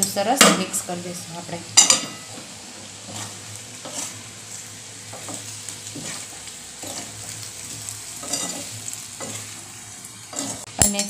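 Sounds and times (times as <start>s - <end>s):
food sizzling in oil: 0.0s - 11.0s
spatula scraping pan: 1.8s - 10.7s.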